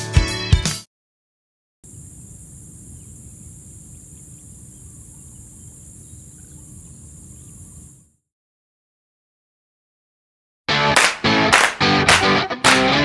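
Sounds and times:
faint chirps: 1.9 - 8.2
high-pitched insect trill: 1.9 - 8.2.

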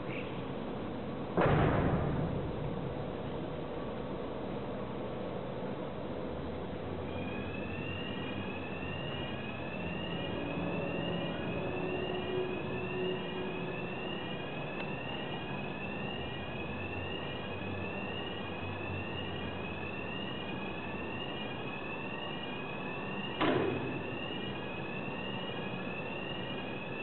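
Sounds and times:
rushing machinery noise: 0.0 - 27.0
rising electronic warning tone: 7.0 - 27.0.

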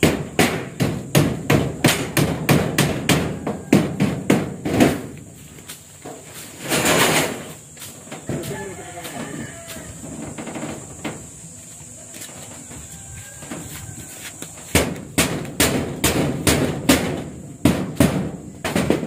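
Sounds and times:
hand tool striking blows: 0.0 - 8.5, 13.5 - 19.0.

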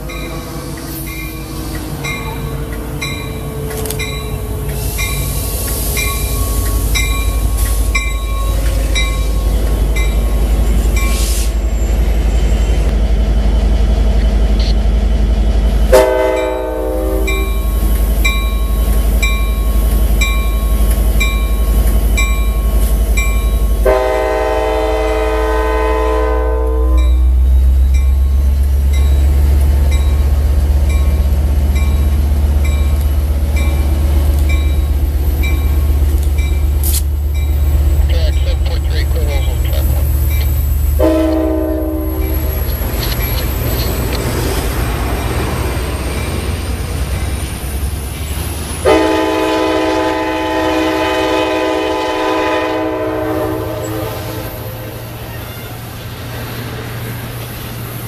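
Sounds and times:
locomotive bell ringing: 0.0 - 11.3, 16.3 - 24.0, 26.8 - 44.1
diesel locomotive rumbling: 0.0 - 58.0
train horn blast: 15.9 - 17.6, 23.8 - 27.2, 41.0 - 42.4, 48.8 - 54.9.

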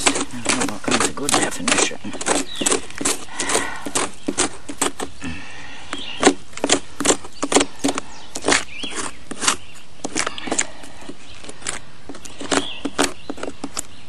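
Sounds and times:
metal tool scraping rotten wood: 0.0 - 5.2, 5.9 - 14.0.

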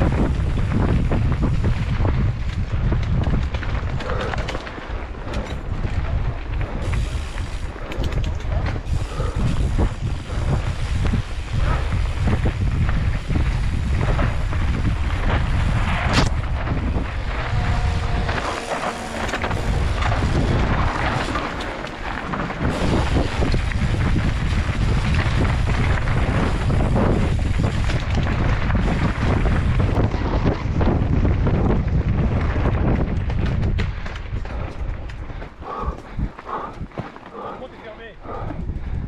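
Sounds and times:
bike rattling over bumps: 0.0 - 39.0
wind rumbling on microphone: 0.0 - 39.0
tyres crunching on dirt and stones: 9.9 - 31.3.

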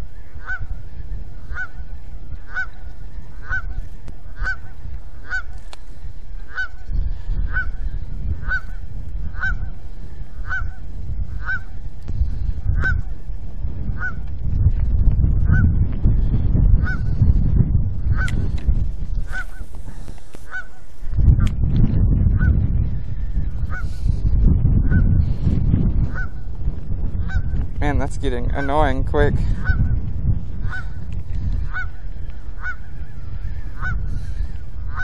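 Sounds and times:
low rumbling noise: 0.0 - 35.0
goose honking: 0.4 - 0.8, 1.4 - 1.8, 2.4 - 5.6, 6.5 - 6.8, 8.4 - 8.8, 9.4 - 9.7, 10.4 - 10.8, 11.4 - 11.8, 19.3 - 19.7, 20.4 - 20.8, 30.6 - 31.0, 31.7 - 32.0, 32.6 - 33.0, 33.8 - 34.2.

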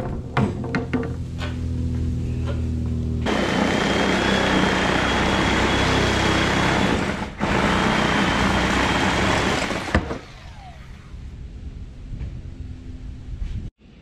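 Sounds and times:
electric power tool whining: 3.2 - 11.2.

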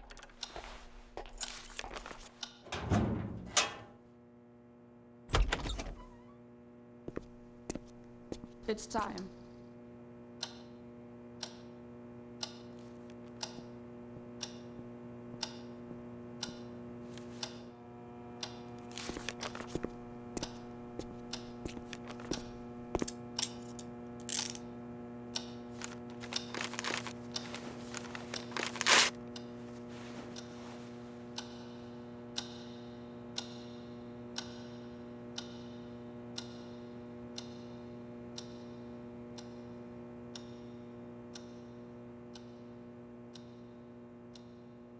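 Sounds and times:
electrical hum: 0.0 - 44.9
clock ticking: 32.4 - 32.7, 34.4 - 34.8.

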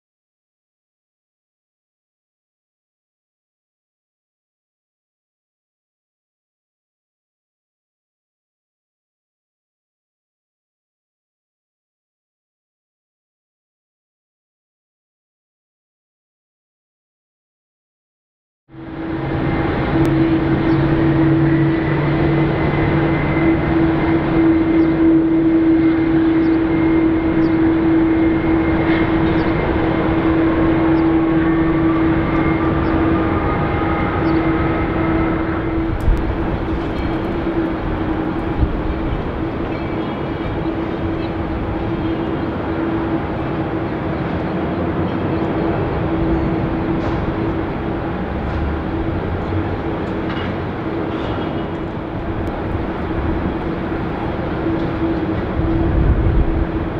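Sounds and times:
jet engines humming and whining: 18.7 - 56.9
rising engine whine: 18.7 - 56.9.

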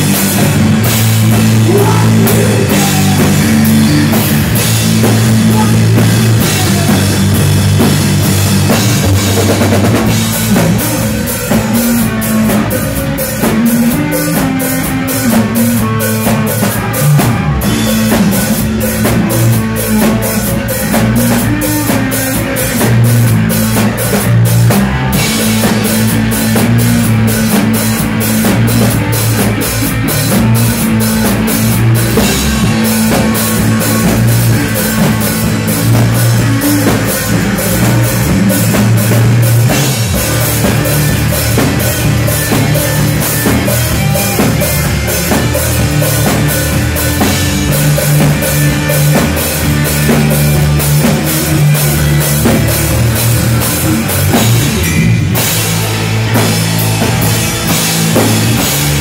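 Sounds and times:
bass guitar: 0.0 - 59.0
drum kit beat: 0.0 - 59.0
electric guitar: 0.0 - 59.0.

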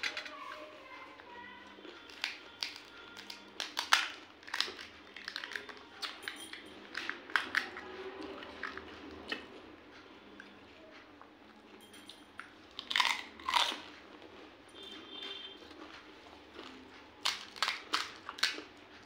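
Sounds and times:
crisp shells crackling: 2.0 - 6.2, 17.2 - 18.7.

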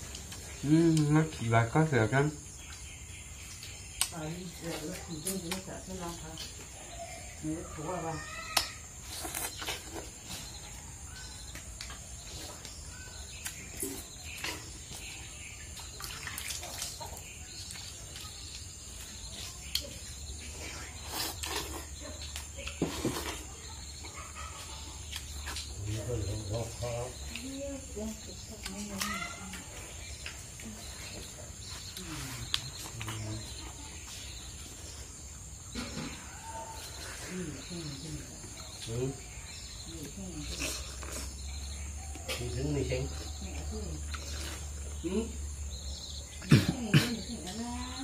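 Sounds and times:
faint bird chirps: 0.0 - 48.0
wet chewing and lip-smacking: 11.4 - 20.2, 21.0 - 25.8.

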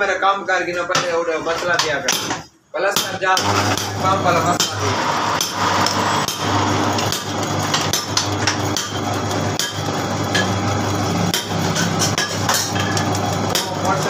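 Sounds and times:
metal lathe humming: 3.4 - 14.0.

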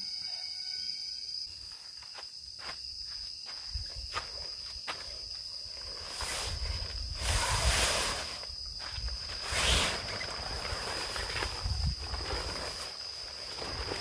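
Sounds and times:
night insects trilling: 0.0 - 14.0
tent fabric rustling: 5.7 - 14.0.

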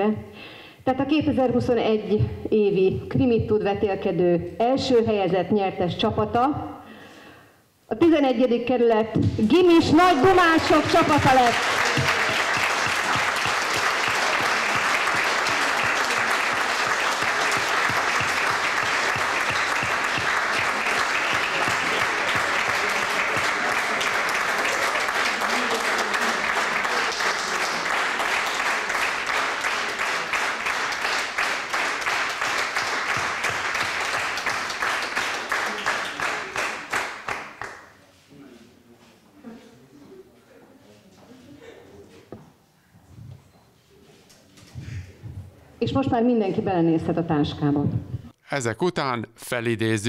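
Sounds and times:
audience applauding: 9.8 - 37.9.

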